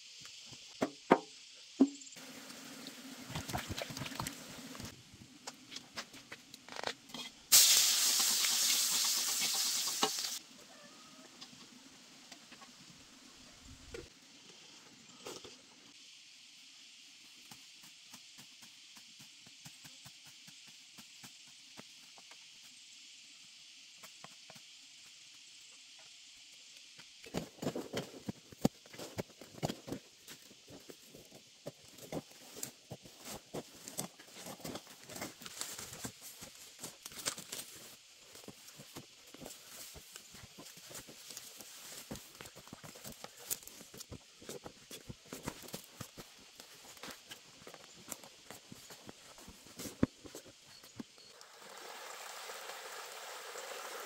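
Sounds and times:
faint steady hiss: 0.0 - 54.0
soil crumbling and scraping: 3.2 - 5.0.

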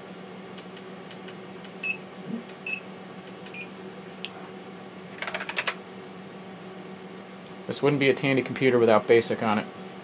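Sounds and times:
computer hum: 0.0 - 7.1.

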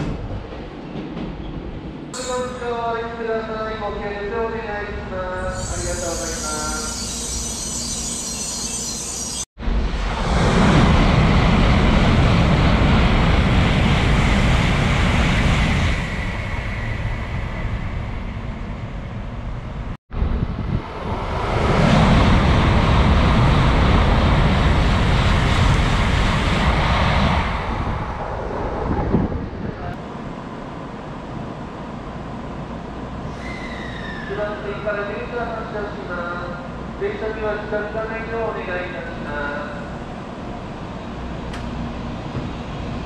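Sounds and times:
high-speed train rushing roar: 0.0 - 43.0.

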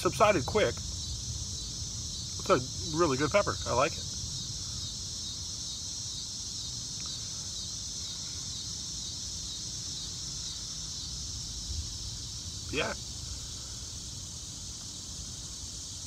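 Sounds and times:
insects chirring: 0.0 - 16.0.

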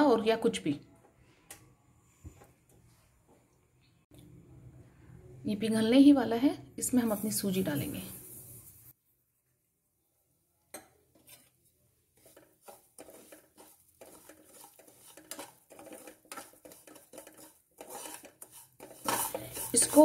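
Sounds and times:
metal ladle scraping metal pan: 11.1 - 11.6, 12.2 - 20.0.

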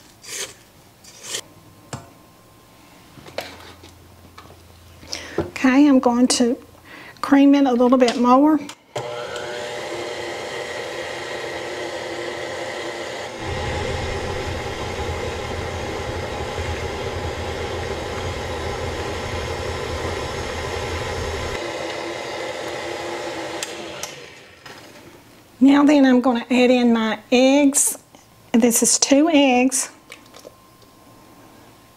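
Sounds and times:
stand mixer running: 9.0 - 25.1
deep rumble: 13.4 - 21.6.

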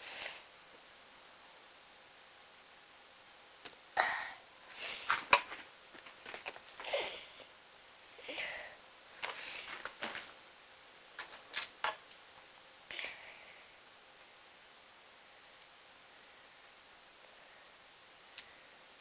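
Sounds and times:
person sniffing: 4.0 - 5.2.

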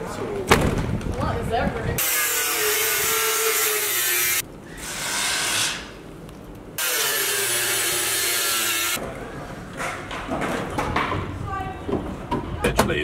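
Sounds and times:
angle grinder cutting metal: 2.0 - 4.4, 6.8 - 9.0.

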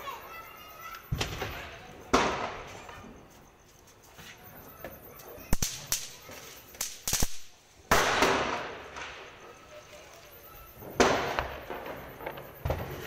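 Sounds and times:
firecrackers cracking: 0.9 - 3.4, 5.2 - 13.0.

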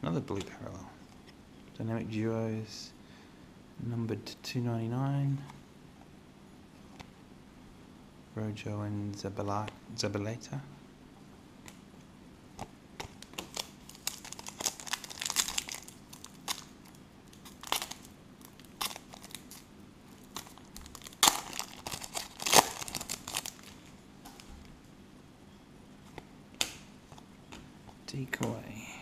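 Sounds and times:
foil wrapper tearing and crinkling: 13.2 - 23.9.

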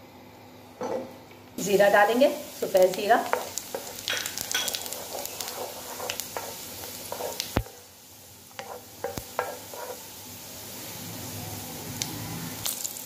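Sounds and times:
garlic sizzling in hot ghee: 1.6 - 13.0
wooden spatula scraping: 3.2 - 7.8, 8.5 - 10.1.

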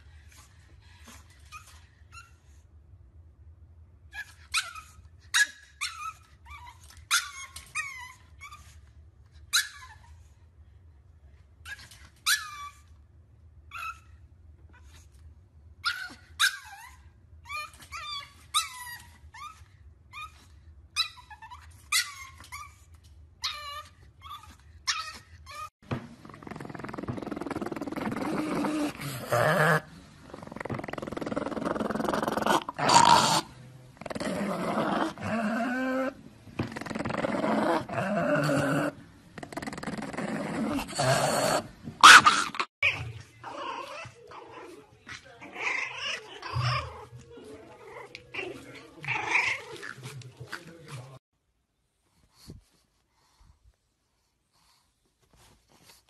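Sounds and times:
puppy yipping and whining: 4.1 - 8.8, 9.5 - 10.2, 11.7 - 12.9, 13.7 - 14.2, 15.8 - 25.7, 45.5 - 47.2.

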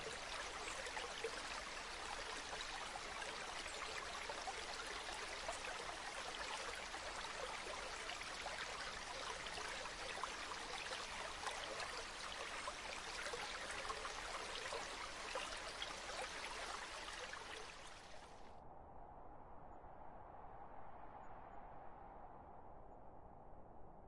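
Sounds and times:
running water rushing: 0.0 - 18.2.

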